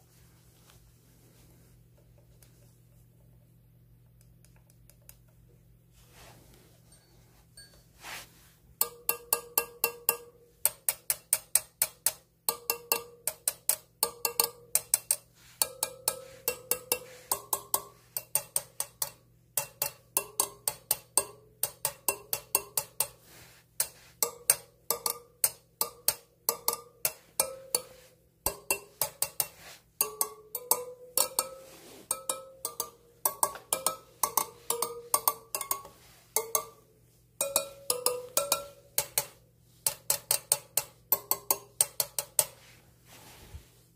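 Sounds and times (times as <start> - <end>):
metal rod pinging spokes: 8.8 - 42.8.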